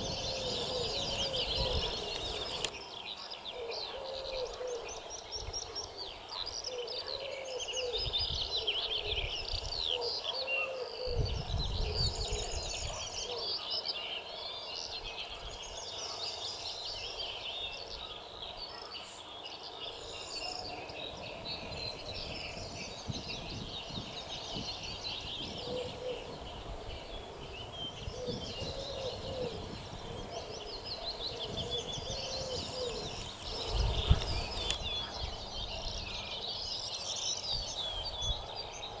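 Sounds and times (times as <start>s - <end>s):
wind rumble on microphone: 0.0s - 2.7s, 7.7s - 10.1s, 11.0s - 13.4s, 20.1s - 39.0s
songbirds chirping and trilling: 0.0s - 39.0s.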